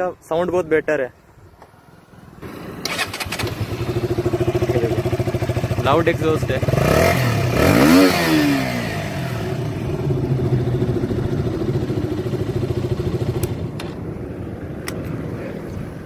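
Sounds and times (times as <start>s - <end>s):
motorcycle engine revving and idling: 2.4s - 14.0s.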